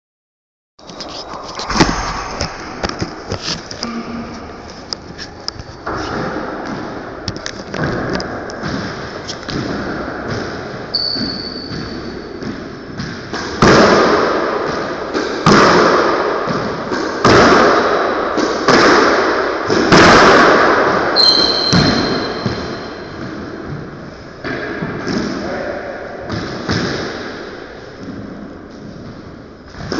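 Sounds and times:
squash ball smacking walls and racquets: 5.8s - 25.4s, 26.2s - 29.9s
sneakers squeaking on wooden floor: 10.9s - 12.3s, 21.2s - 23.2s.

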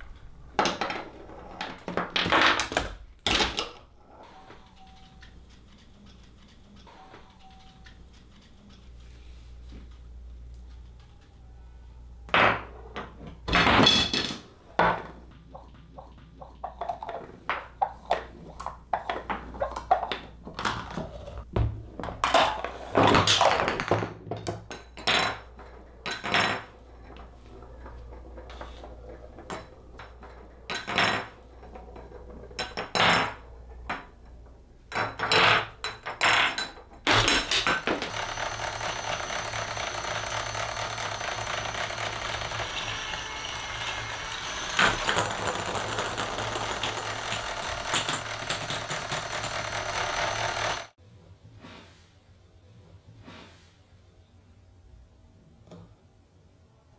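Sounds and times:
objects knocking and clattering: 0.0s - 8.8s, 12.3s - 51.0s
mechanical whirring: 38.0s - 45.4s, 46.7s - 50.9s.

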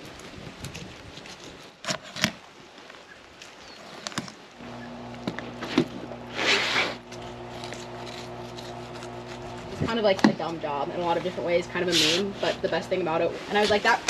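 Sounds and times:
low steady hum: 4.5s - 14.0s
knife scraping swish: 6.3s - 10.0s, 11.2s - 12.8s.

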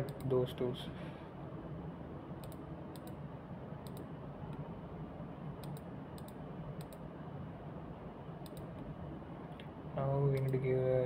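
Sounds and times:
low room hum: 0.0s - 11.0s
computer mouse clicking: 2.4s - 3.2s, 3.8s - 4.6s, 5.6s - 7.0s, 8.4s - 8.8s, 10.4s - 10.6s.

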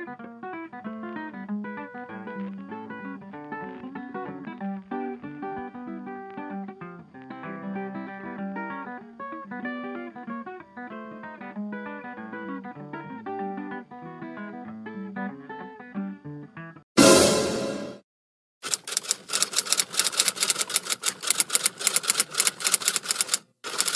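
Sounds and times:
guitar plucked notes: 0.0s - 16.0s.

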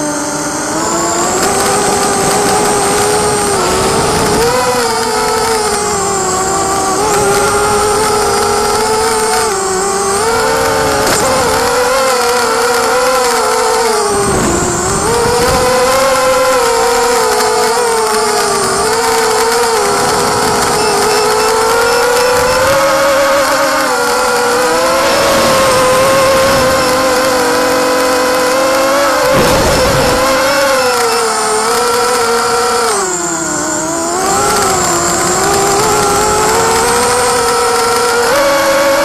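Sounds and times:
drone motors buzzing whine: 0.0s - 39.0s.

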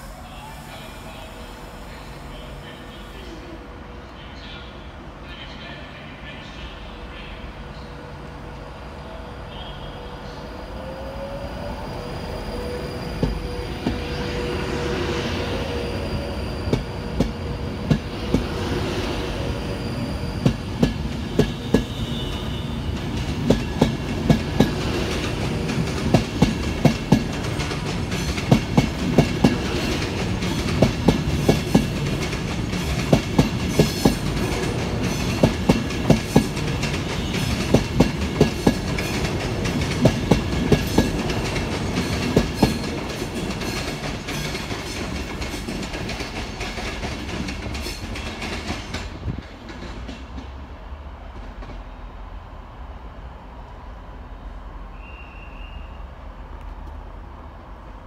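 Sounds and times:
electric train whine: 0.0s - 49.5s
train wheels clicking over rail joints: 20.4s - 50.6s.

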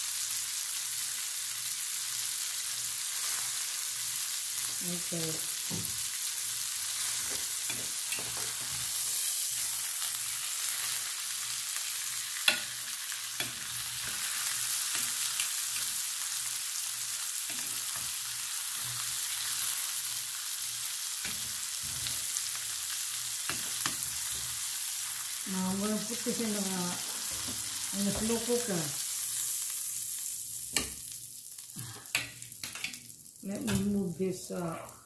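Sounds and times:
meat sizzling in a skillet: 0.0s - 35.0s.

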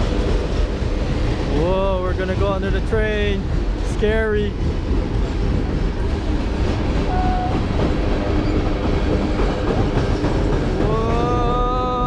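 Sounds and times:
freight train rumbling over bridge: 0.0s - 12.0s.

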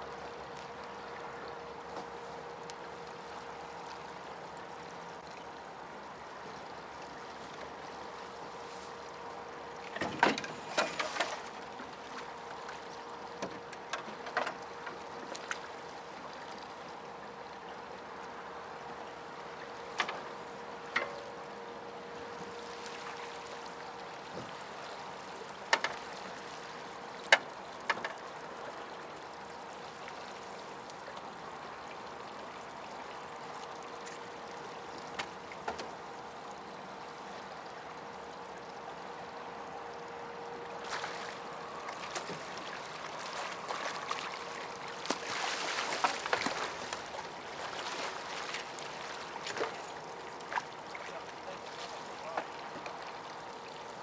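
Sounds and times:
river hiss: 1.9s - 13.4s, 17.9s - 52.4s
fish thrashing and splashing: 42.0s - 49.8s.

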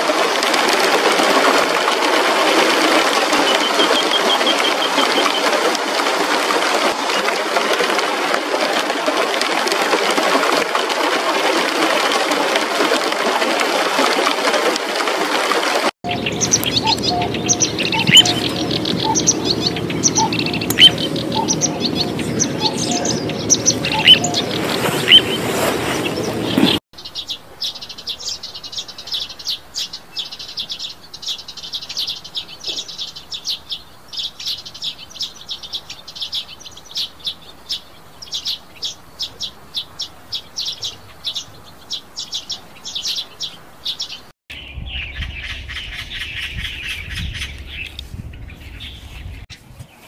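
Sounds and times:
small birds chirping: 3.0s - 5.7s, 16.0s - 50.0s.

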